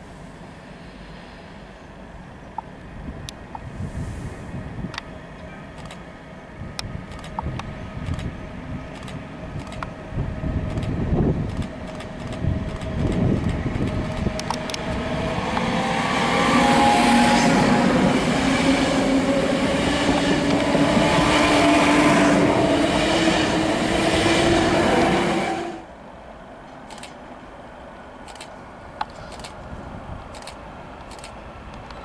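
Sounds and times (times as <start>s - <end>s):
electric train humming whine: 0.0s - 29.0s
train wheels on rails: 3.2s - 25.9s, 28.0s - 32.0s
sharp clicks: 6.8s - 8.3s, 8.9s - 9.9s, 10.7s - 14.9s.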